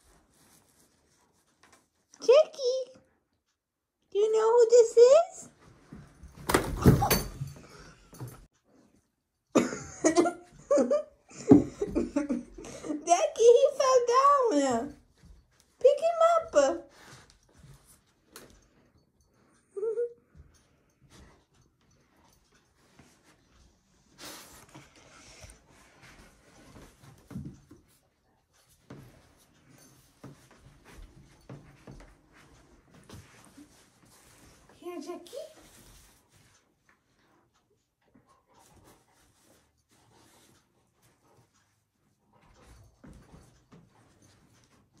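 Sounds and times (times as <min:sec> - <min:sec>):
child giggling: 0:09.6 - 0:13.0.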